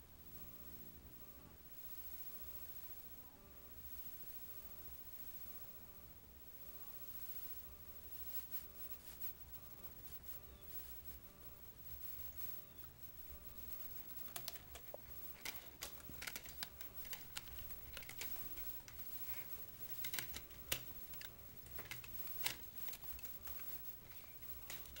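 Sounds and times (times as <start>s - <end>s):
cat claws tapping on glass door: 13.8s - 25.0s.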